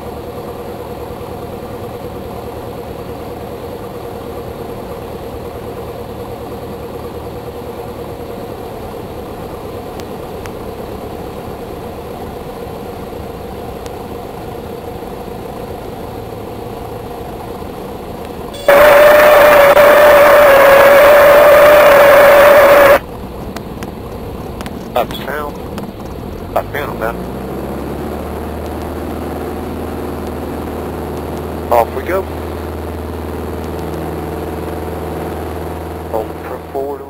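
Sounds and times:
plane engine and propeller droning: 0.0s - 37.0s.

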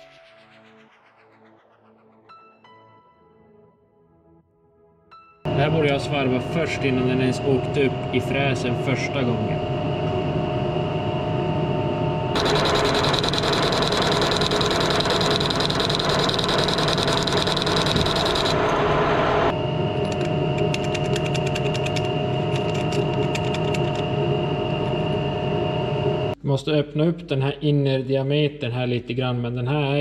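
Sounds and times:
machine tool humming: 5.6s - 26.4s.

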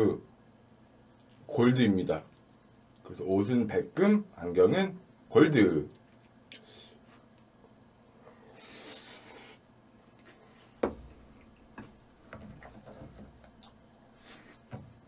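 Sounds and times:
chewing: 1.1s - 1.5s, 2.3s - 3.1s, 12.5s - 14.6s.

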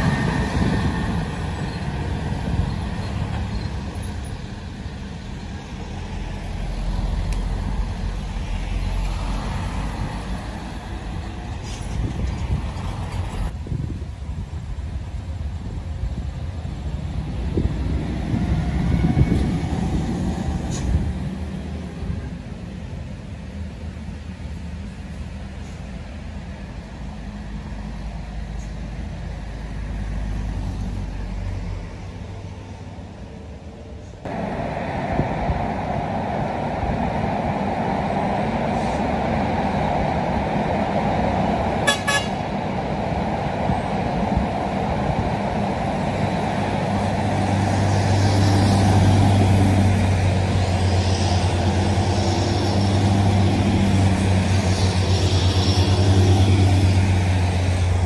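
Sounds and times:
road noise: 0.0s - 58.0s
truck horn toots: 41.8s - 42.4s.

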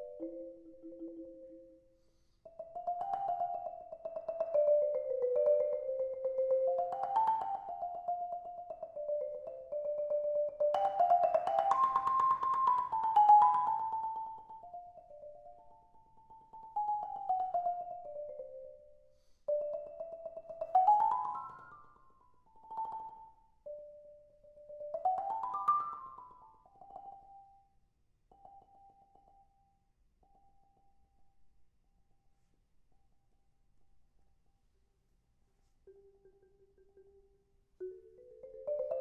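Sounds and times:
marimba rolled notes: 0.0s - 1.8s, 2.5s - 18.8s, 19.5s - 21.9s, 22.5s - 26.6s, 35.9s - 39.0s.

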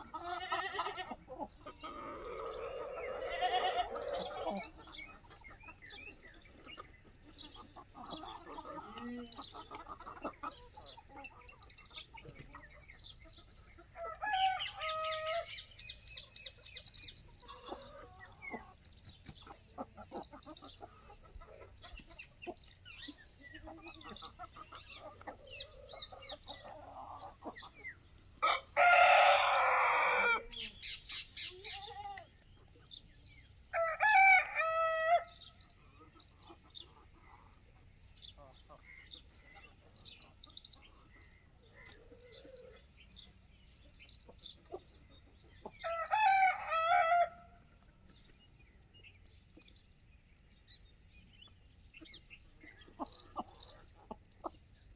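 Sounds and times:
roosters crowing: 0.0s - 5.0s, 13.9s - 15.8s, 28.4s - 30.9s, 33.6s - 35.6s, 45.7s - 47.8s
hens clucking and chirping: 0.0s - 54.9s.

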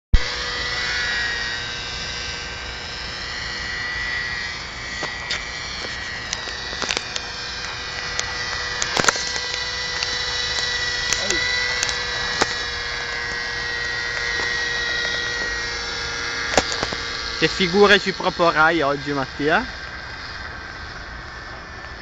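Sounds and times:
model helicopter engine and rotor whine: 0.1s - 22.0s
sharp clicks: 6.3s - 12.6s.

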